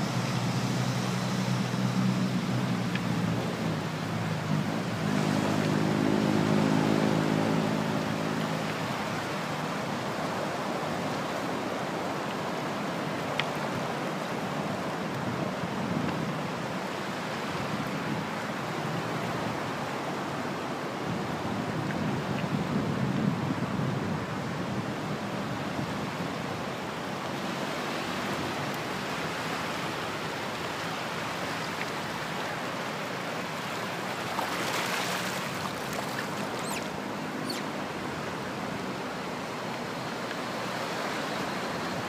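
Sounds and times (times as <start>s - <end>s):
surf on pebble beach: 0.0s - 42.0s
low engine hum: 33.6s - 42.0s.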